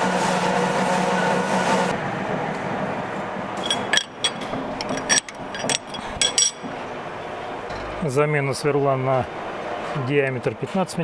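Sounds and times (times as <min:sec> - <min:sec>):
sharp metallic clinks: 0:03.6 - 0:06.8.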